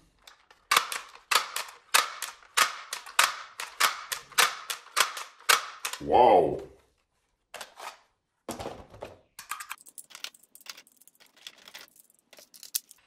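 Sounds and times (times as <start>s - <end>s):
plastic toy gun clicking: 0.2s - 6.0s.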